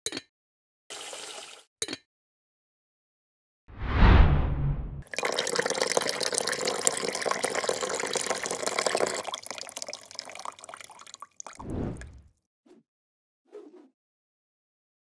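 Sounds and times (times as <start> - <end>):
short low burst: 3.8 - 5.0
milk pouring into glass: 5.0 - 12.1.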